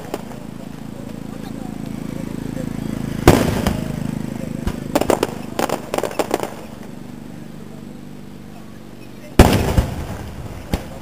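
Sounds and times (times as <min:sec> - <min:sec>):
firework sharp pops: 0:00.0 - 0:00.4, 0:03.2 - 0:06.9, 0:09.4 - 0:11.0
firework shell boom: 0:09.4 - 0:11.0.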